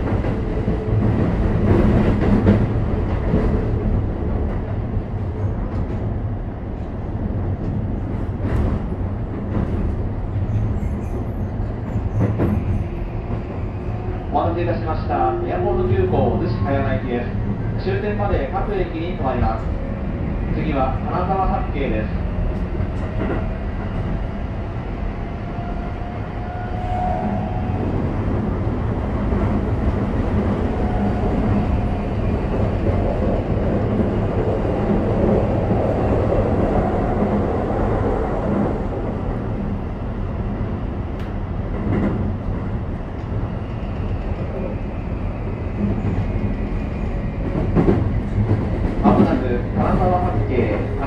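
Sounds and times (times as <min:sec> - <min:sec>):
train wheels rumbling on rails: 0:00.0 - 0:51.0
rail-joint clacks: 0:47.4 - 0:51.0.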